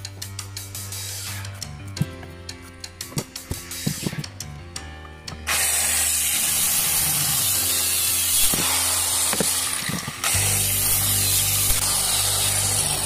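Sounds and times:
circular saw cutting wood: 5.5 - 13.0.

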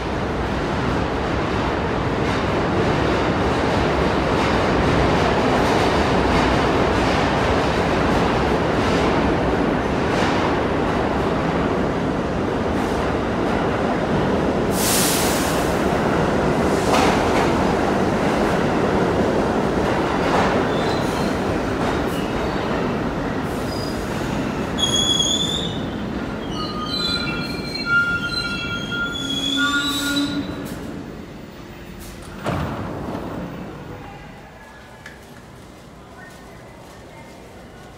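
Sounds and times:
subway train rushing on rails: 0.0 - 37.9
high metallic squealing: 26.4 - 30.6.

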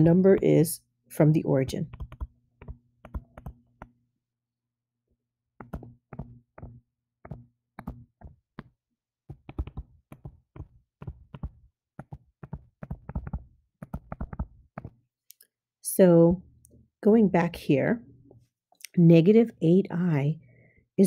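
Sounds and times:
stylus tapping on touchscreen: 1.9 - 4.0, 5.6 - 15.0.

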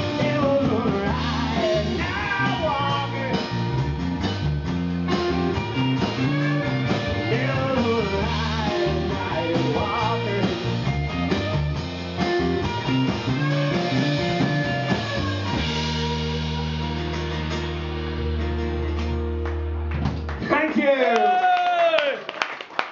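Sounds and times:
person singing: 0.0 - 3.6, 6.1 - 10.8
electric guitars: 0.0 - 20.6
live rock band playing: 0.0 - 20.9.

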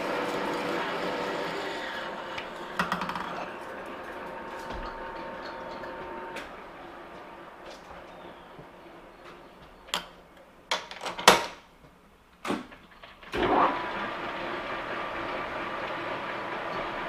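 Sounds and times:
lathe spindle whining: 0.0 - 9.9, 13.4 - 17.0.

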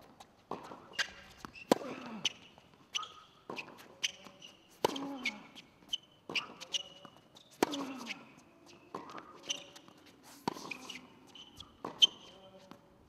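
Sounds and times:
tennis rackets striking ball: 0.5 - 5.3, 11.8 - 12.2
tennis ball bouncing: 0.5 - 8.2, 8.9 - 12.8
sneakers squeaking on court: 0.5 - 12.6.

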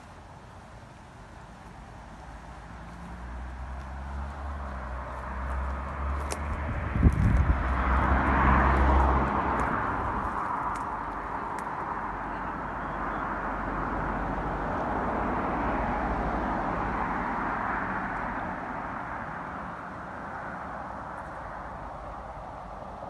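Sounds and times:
outdoor background hiss: 0.0 - 6.1.

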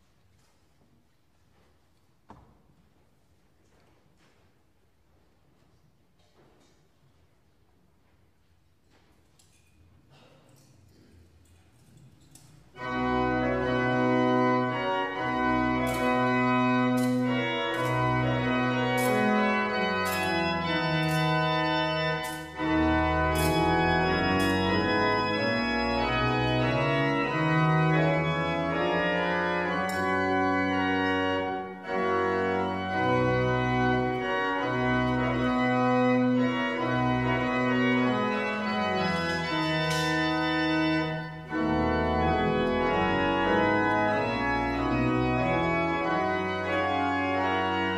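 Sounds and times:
pipe organ chords: 12.7 - 47.9.

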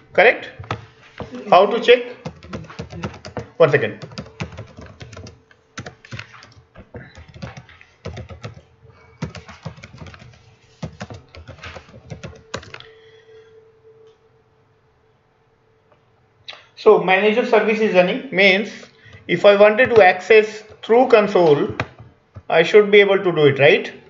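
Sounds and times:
faint steady hum: 0.0 - 24.0
keyboard typing: 2.2 - 13.0.

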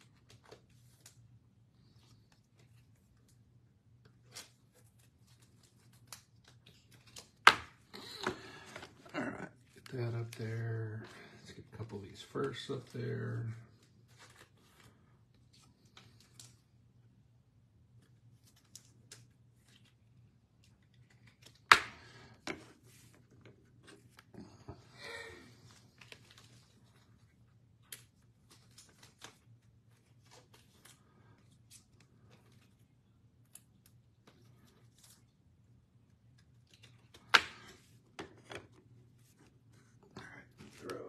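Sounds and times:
cards clicking and tapping: 5.8 - 9.0, 20.7 - 24.3, 36.4 - 38.9.

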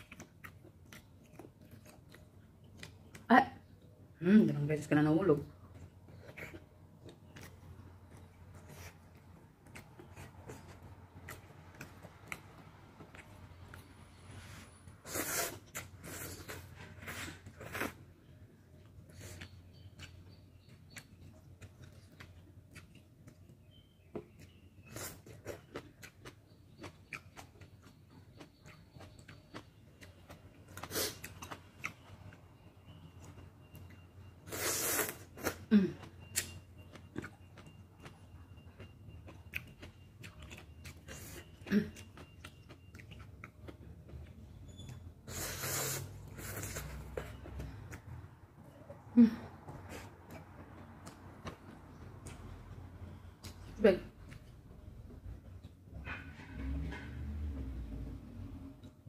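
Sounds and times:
wet chewing and lip-smacking: 0.0 - 3.9, 5.6 - 13.9, 18.8 - 56.2.

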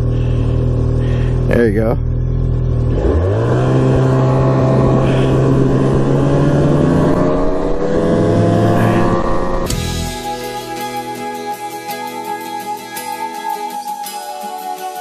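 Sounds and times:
snowmobile engine revving: 2.7 - 9.7.

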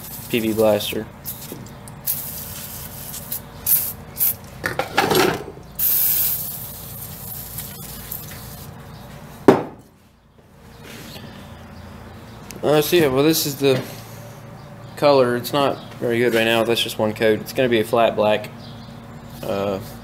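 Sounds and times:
aerosol can spraying: 0.0 - 4.4, 5.8 - 8.7
sharp knock: 9.5 - 9.8.

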